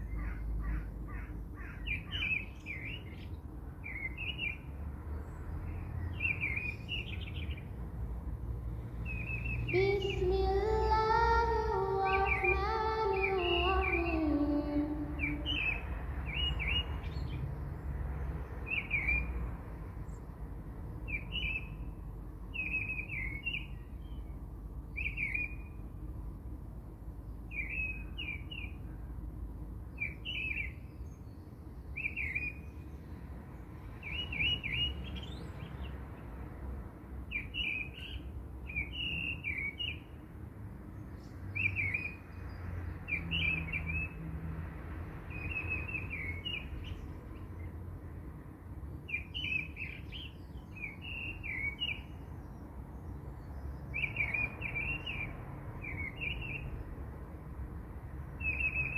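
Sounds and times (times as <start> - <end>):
bird chirping: 0.0 - 7.7, 9.0 - 17.4, 21.0 - 24.3, 24.9 - 25.8, 29.9 - 33.1, 33.8 - 36.0, 37.3 - 40.2, 41.0 - 44.2, 45.3 - 47.8, 49.0 - 56.8, 58.3 - 58.9.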